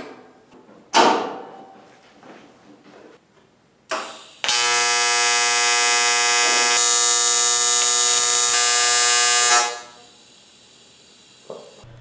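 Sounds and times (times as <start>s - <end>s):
welding arc buzzing: 3.9s - 12.0s.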